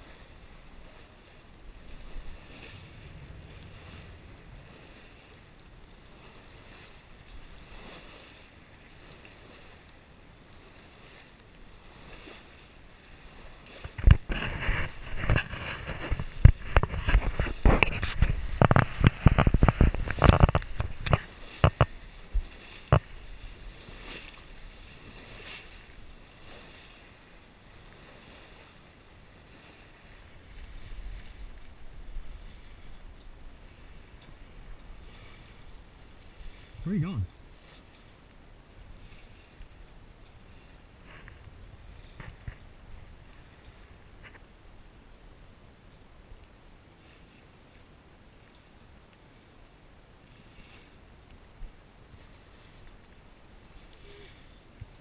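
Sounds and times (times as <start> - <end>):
wind buffeting microphone: 0.0 - 9.8, 13.0 - 27.3
water rushing along a hull: 0.0 - 55.0
wind: 0.0 - 55.0
water splashing: 11.8 - 38.1.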